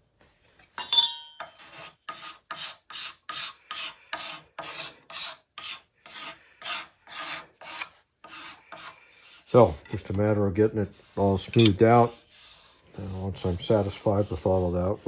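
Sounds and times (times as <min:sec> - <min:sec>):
card scraper scraping wood: 0:01.6 - 0:09.8.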